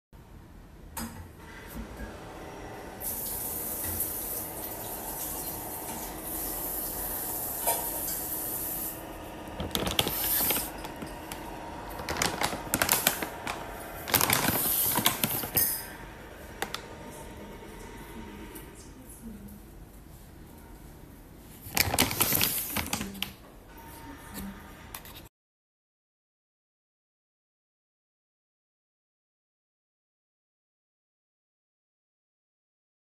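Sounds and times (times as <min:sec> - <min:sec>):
packaging crackling and rustling: 0:09.5 - 0:15.8, 0:21.6 - 0:23.4.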